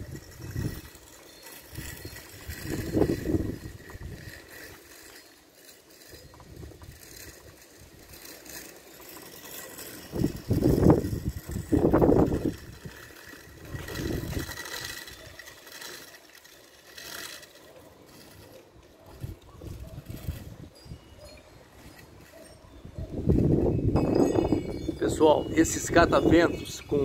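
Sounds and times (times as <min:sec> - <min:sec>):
wind buffeting microphone: 0:00.0 - 0:01.1, 0:01.7 - 0:04.5, 0:10.0 - 0:15.4, 0:19.1 - 0:21.2, 0:22.8 - 0:27.0.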